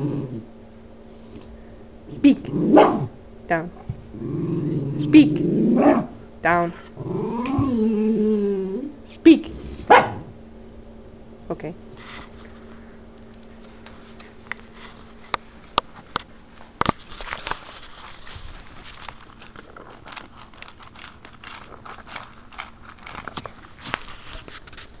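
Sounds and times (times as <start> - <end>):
dog crunching and chewing: 13.2 - 25.0.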